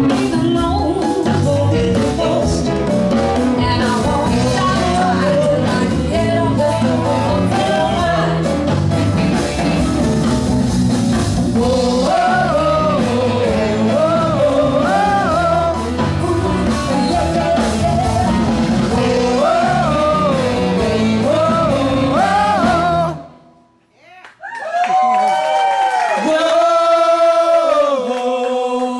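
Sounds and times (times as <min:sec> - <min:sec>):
rhythm and blues band: 0:00.0 - 0:23.4
women singing: 0:03.6 - 0:08.5, 0:11.6 - 0:18.1, 0:18.9 - 0:23.3.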